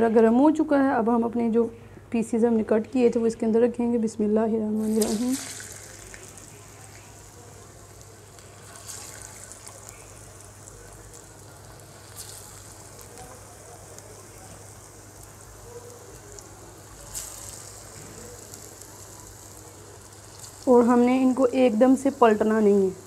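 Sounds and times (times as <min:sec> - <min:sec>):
batter frying in oil: 0:04.8 - 0:23.0.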